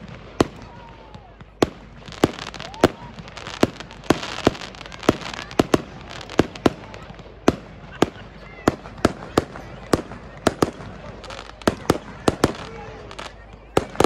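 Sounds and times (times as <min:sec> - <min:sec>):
firework crackling: 0:00.0 - 0:14.0.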